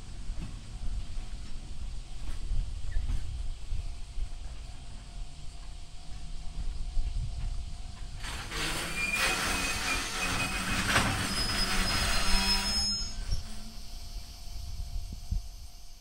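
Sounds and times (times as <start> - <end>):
freight wagons rumbling on rails: 0.0 - 16.0
high-pitched wheel squeal: 8.6 - 14.6.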